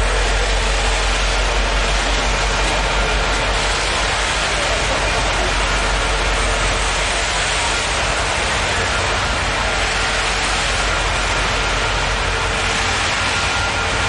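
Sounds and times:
train wheels rolling on rails: 0.0s - 14.0s.

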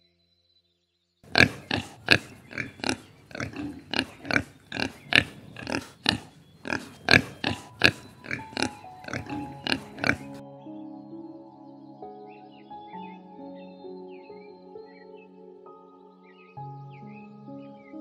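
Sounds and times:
piglets giving high calls: 1.3s - 10.4s.

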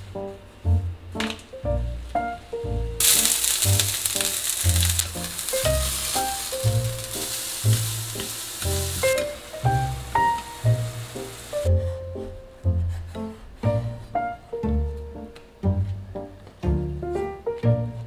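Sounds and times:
vegetables sizzling in pan: 3.0s - 11.7s
music with plucked bass: 13.7s - 18.0s.

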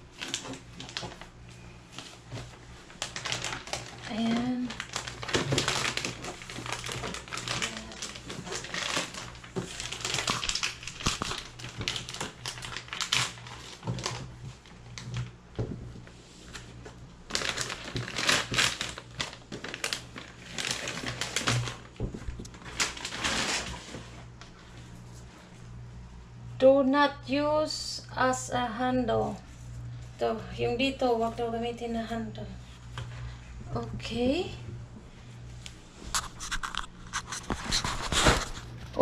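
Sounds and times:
plastic packaging crinkling: 0.0s - 15.4s, 16.4s - 25.3s, 36.0s - 39.0s.

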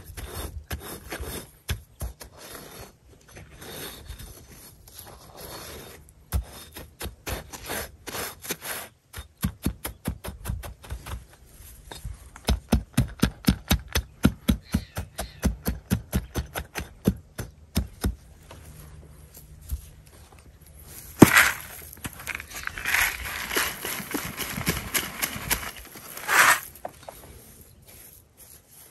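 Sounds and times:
brick knocking on gravel: 20.9s - 27.2s.

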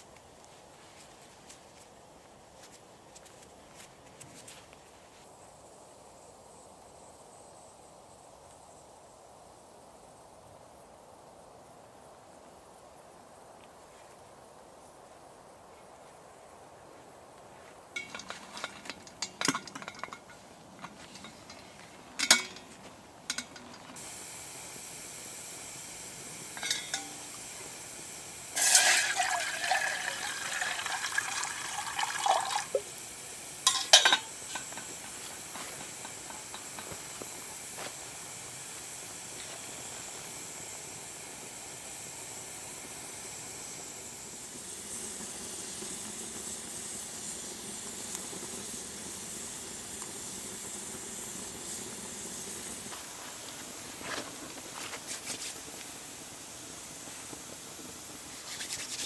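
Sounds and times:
campfire hissing: 0.0s - 59.0s
water poured into metal kettle: 28.5s - 33.0s.

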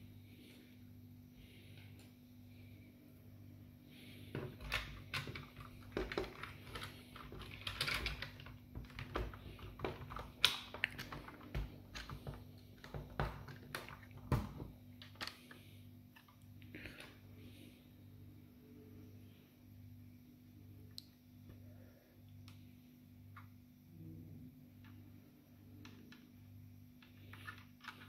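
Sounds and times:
plastic parts clicking and tapping: 4.3s - 16.4s, 27.0s - 28.0s.

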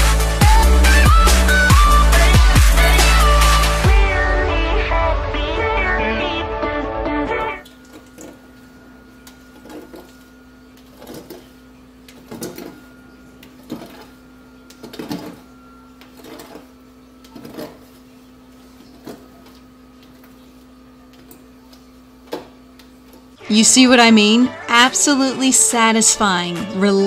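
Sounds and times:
scrubbing on a stovetop: 7.6s - 23.4s.

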